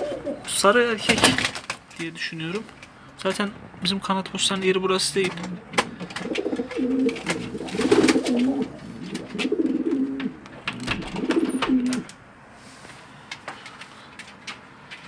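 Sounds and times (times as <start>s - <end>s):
pigeons cooing: 0.0s - 0.5s, 5.7s - 12.1s.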